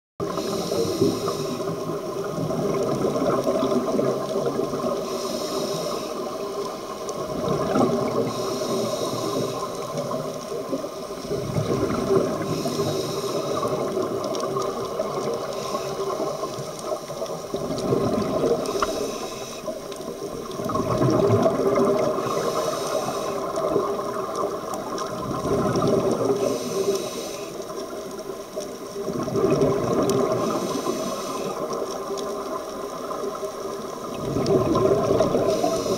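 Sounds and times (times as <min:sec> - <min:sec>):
gurgle of exhaled bubbles: 0:00.2 - 0:35.9
regulator breathing hiss: 0:00.3 - 0:02.0, 0:04.9 - 0:07.1, 0:08.1 - 0:10.3, 0:12.3 - 0:14.0, 0:15.2 - 0:17.0, 0:18.5 - 0:19.9, 0:22.0 - 0:24.0, 0:26.3 - 0:27.9, 0:30.2 - 0:31.8, 0:35.3 - 0:35.9.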